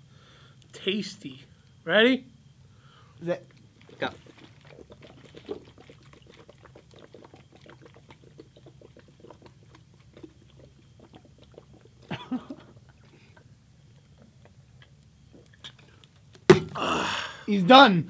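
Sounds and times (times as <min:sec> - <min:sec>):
man gulping juice: 0:03.4 - 0:17.5.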